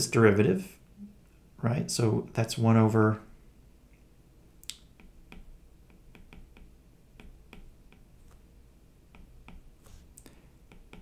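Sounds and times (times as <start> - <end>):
stylus tapping on tablet: 4.9 - 10.0, 10.6 - 11.0.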